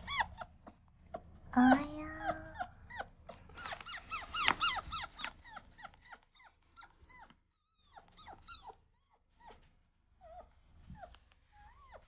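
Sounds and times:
fox chirping: 2.0 - 9.2.

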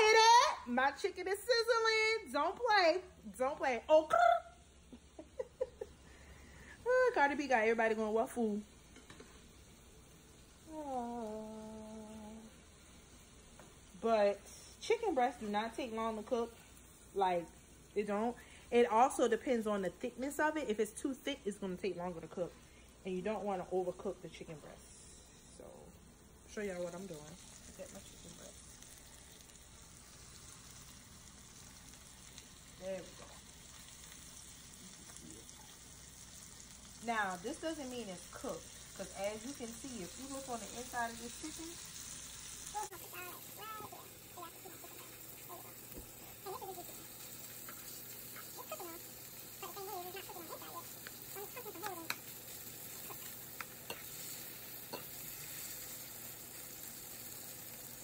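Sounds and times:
chicken sizzling in pan: 0.0 - 58.0
utensil clicking against pan: 53.1 - 54.1.

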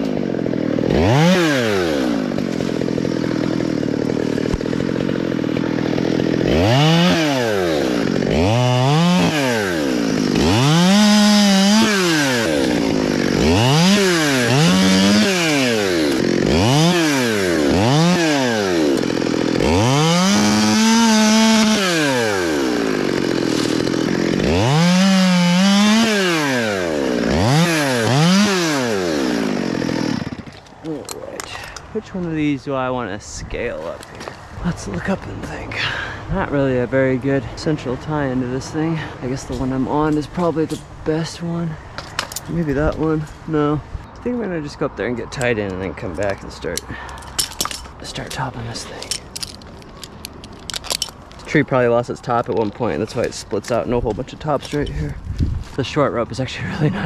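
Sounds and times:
chainsaw revving: 0.0 - 32.1, 56.6 - 57.0.

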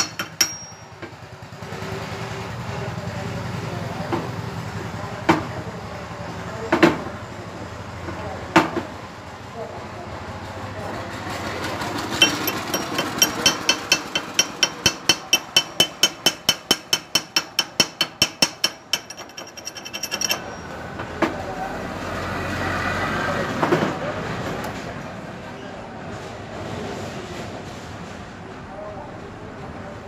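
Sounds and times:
ringing hammer taps on metal: 0.0 - 1.2, 12.2 - 21.4.

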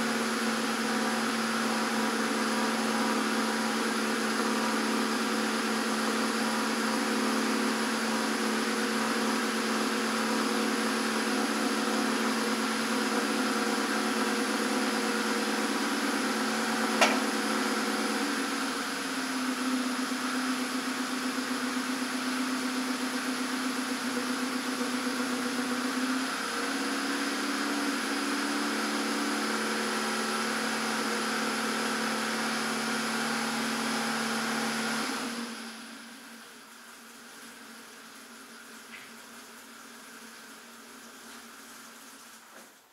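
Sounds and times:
car engine idling: 0.0 - 26.1.

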